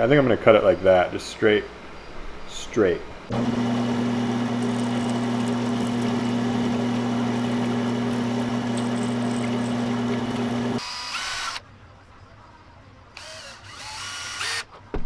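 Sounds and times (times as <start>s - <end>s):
bandsaw cutting: 3.3s - 11.6s
cordless drill whirring: 3.3s - 11.6s, 13.2s - 14.7s.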